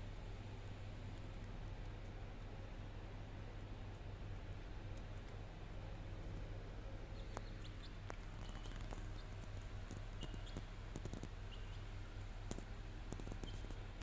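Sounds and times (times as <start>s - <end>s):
chicks pecking on tiled floor: 0.7s - 14.0s
chicks peeping: 7.1s - 12.0s, 13.2s - 13.8s.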